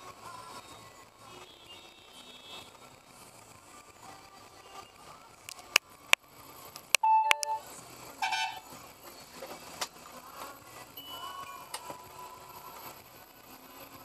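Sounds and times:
street traffic: 0:00.0 - 0:14.0
sharp clicks: 0:06.8 - 0:07.6
vehicle horn honks: 0:08.2 - 0:08.6.

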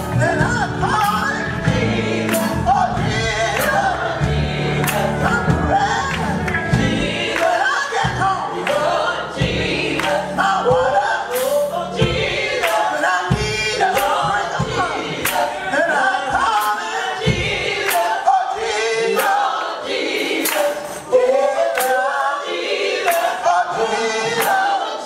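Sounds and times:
bass: 0:00.0 - 0:12.7
drums: 0:00.0 - 0:21.2
gospel choir singing: 0:00.0 - 0:25.0.

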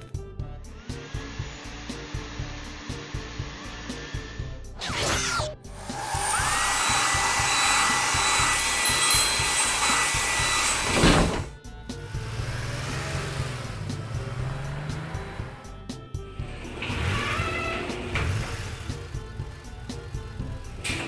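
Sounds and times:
background music with steady beat: 0:00.0 - 0:04.8, 0:05.4 - 0:21.0
whirring blower with whine: 0:00.7 - 0:04.8, 0:05.4 - 0:14.1.

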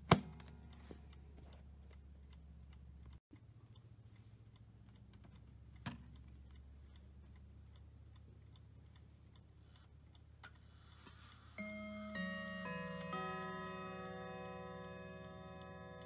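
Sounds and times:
clock ticking faintly: 0:00.0 - 0:16.0
clock chime striking: 0:11.6 - 0:16.0.

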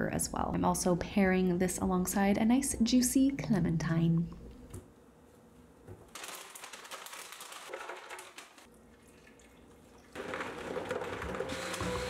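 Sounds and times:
liquid pouring into a blender jar: 0:07.6 - 0:11.9
blender running: 0:10.2 - 0:12.0.

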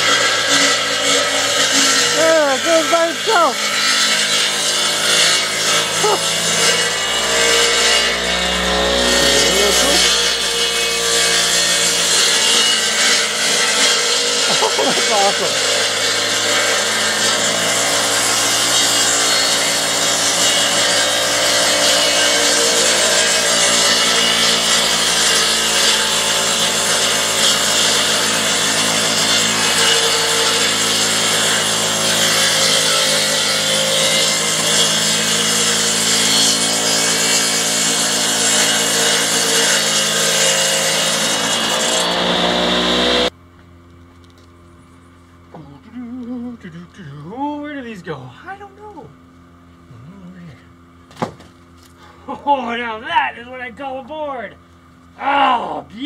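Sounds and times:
sawmill cutting wood: 0:00.0 - 0:43.4.

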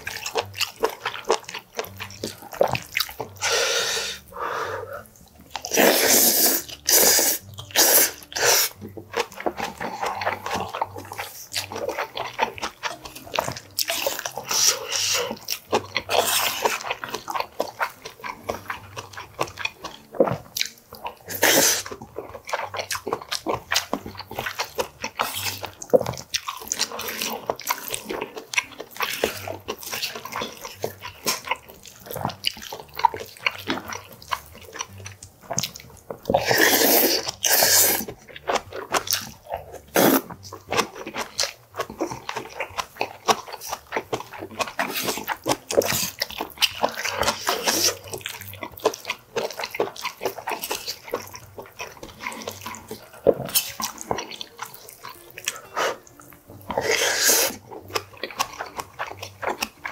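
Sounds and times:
wet chewing and lip-smacking: 0:00.0 - 0:59.9
loud slurp: 0:03.4 - 0:08.8, 0:21.2 - 0:22.6, 0:36.3 - 0:38.2, 0:38.9 - 0:40.4, 0:46.8 - 0:48.1, 0:55.4 - 0:57.7.

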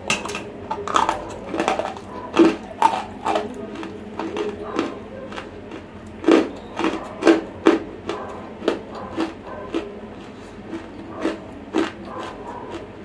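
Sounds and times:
dry crunchy chewing: 0:00.3 - 0:13.0.

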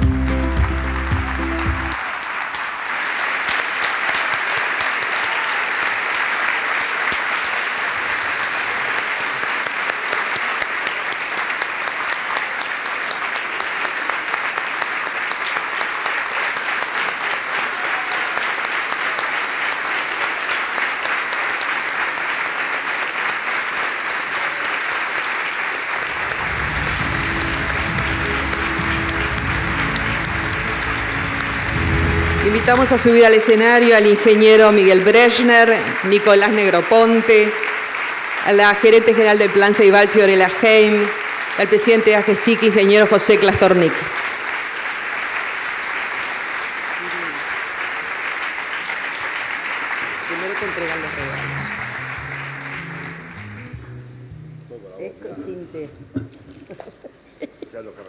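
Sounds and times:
music with low bass line: 0:00.0 - 0:02.0, 0:26.2 - 0:33.0, 0:50.8 - 0:54.8
audience applauding: 0:00.0 - 0:54.3.

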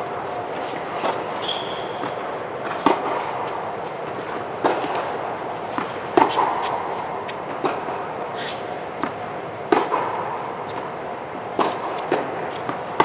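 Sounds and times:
steady background noise: 0:00.0 - 0:13.0
racquet hitting tennis ball: 0:00.1 - 0:13.0
shoe squeak: 0:01.1 - 0:02.3
ball bouncing on hard court: 0:04.6 - 0:08.1, 0:09.0 - 0:10.9.

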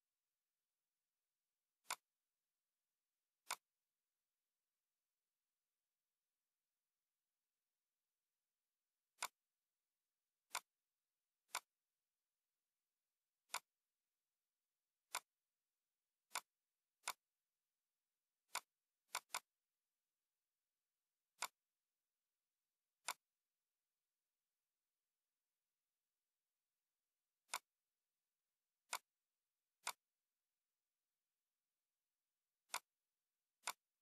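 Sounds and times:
computer mouse clicks: 0:01.8 - 0:02.1, 0:03.4 - 0:03.8, 0:09.1 - 0:09.5, 0:10.4 - 0:10.8, 0:11.4 - 0:11.8, 0:13.4 - 0:13.8, 0:15.0 - 0:15.4, 0:16.2 - 0:17.4, 0:18.4 - 0:19.6, 0:21.3 - 0:21.7, 0:23.0 - 0:23.4, 0:27.4 - 0:27.8, 0:28.8 - 0:29.2, 0:29.8 - 0:30.2, 0:32.6 - 0:33.0, 0:33.6 - 0:34.0.

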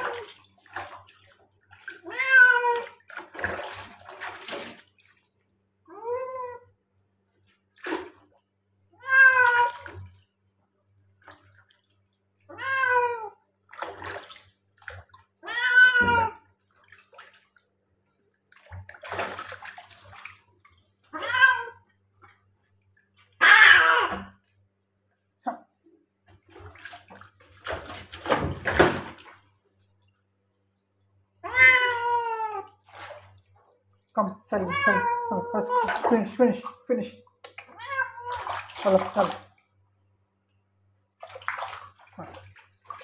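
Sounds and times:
water splashing: 0:00.0 - 0:05.4, 0:09.3 - 0:10.3, 0:13.7 - 0:17.8, 0:18.4 - 0:22.4, 0:26.4 - 0:29.9, 0:32.7 - 0:39.7, 0:41.2 - 0:43.0
cat meowing loudly: 0:02.0 - 0:03.0, 0:09.0 - 0:09.8, 0:12.5 - 0:13.4, 0:15.4 - 0:16.4, 0:21.1 - 0:21.8, 0:23.4 - 0:24.4, 0:31.4 - 0:32.7.

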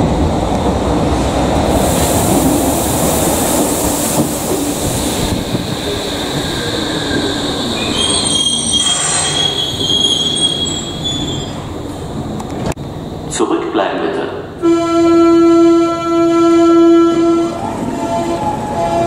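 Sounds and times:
train wheels rumbling on rail: 0:00.0 - 0:19.0
high brake squealing: 0:05.9 - 0:11.8.

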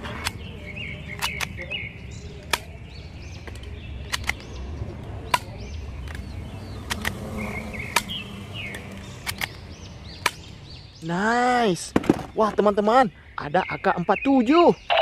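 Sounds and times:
toy pistol sharp snaps: 0:06.8 - 0:07.2.

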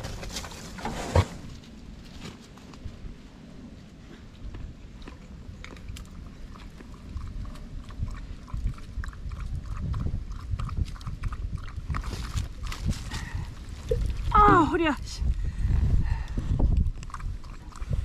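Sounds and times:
wind on microphone: 0:04.4 - 0:18.0
dog lapping water: 0:05.2 - 0:12.8, 0:16.7 - 0:18.0.

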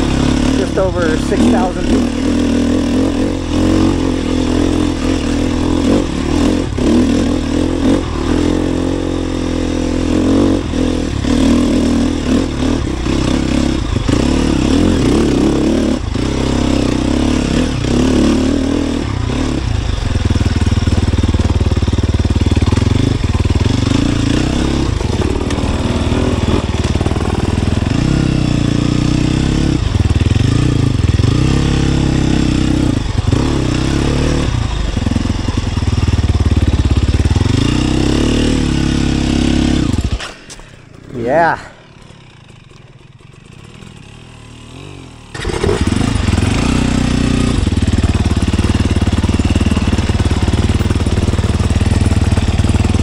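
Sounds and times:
motorcycle engine revving: 0:00.0 - 0:53.0.

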